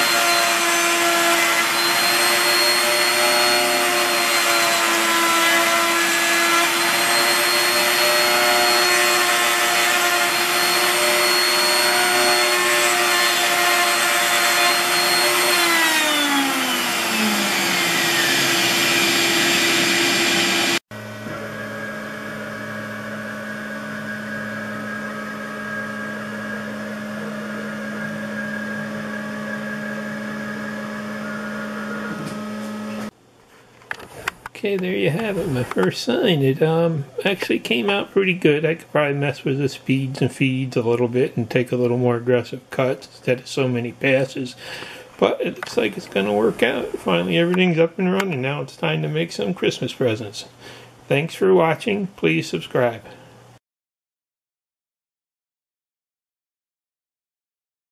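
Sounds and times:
router motor running: 0.0s - 33.1s
shop vac suction: 0.0s - 36.2s, 42.7s - 48.3s.

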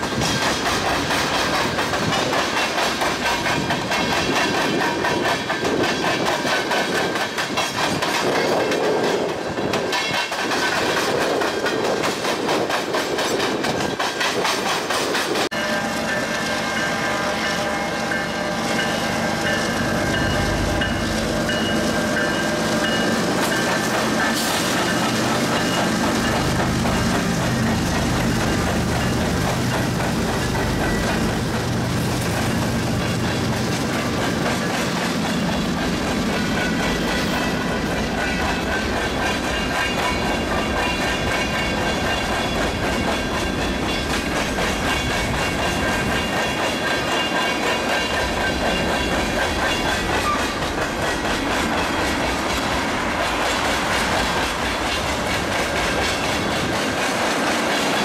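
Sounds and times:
diesel locomotive engine drone: 15.3s - 58.0s.

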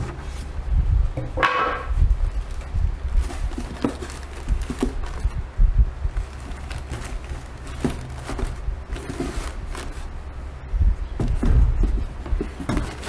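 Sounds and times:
steady low rumble: 0.0s - 12.6s
plastic bags rustling: 2.3s - 5.5s, 6.1s - 10.3s, 11.2s - 13.0s.

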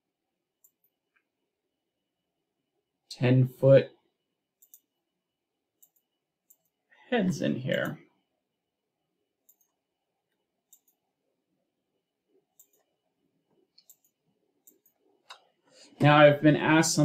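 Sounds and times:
faint mouse clicks: 0.6s - 1.3s, 4.6s - 4.9s, 5.8s - 6.8s, 9.4s - 11.0s, 12.6s - 12.9s, 13.5s - 15.6s.

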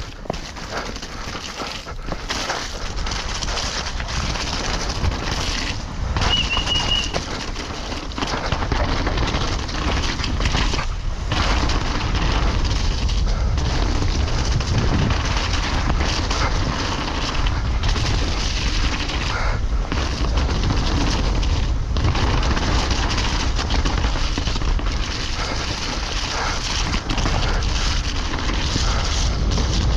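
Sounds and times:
bike rattling: 0.0s - 29.9s
bike tyres rumbling in mud: 0.0s - 29.9s
high squeal: 6.2s - 7.2s.

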